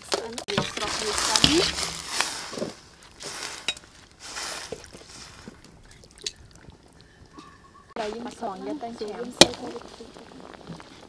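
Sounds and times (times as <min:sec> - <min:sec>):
water sloshing in a metal wok: 0:00.5 - 0:08.2.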